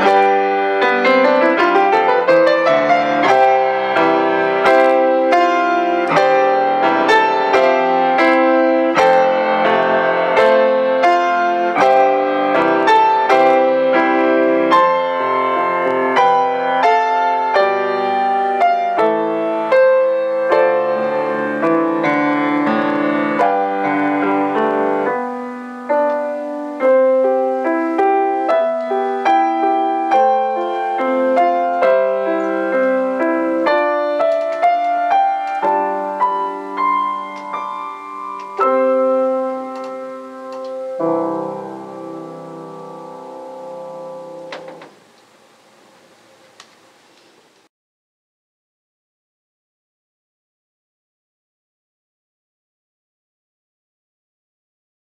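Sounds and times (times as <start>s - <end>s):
solo grand piano piece: 0.0s - 47.7s.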